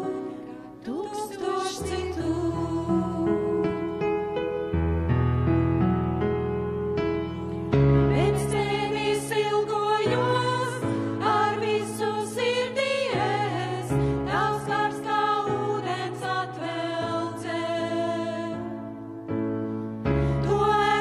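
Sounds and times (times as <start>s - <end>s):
women singing together: 0.0s - 4.0s, 8.1s - 19.0s, 20.4s - 21.0s.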